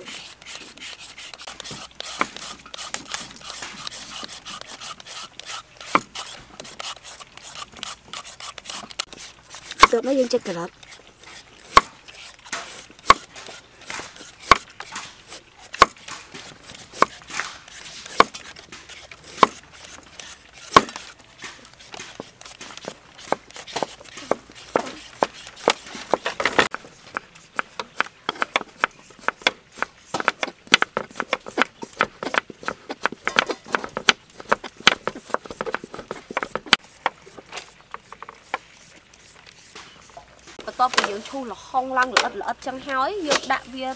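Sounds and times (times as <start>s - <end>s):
cleaver chopping on wooden block: 0.8s - 10.0s, 11.7s - 37.0s.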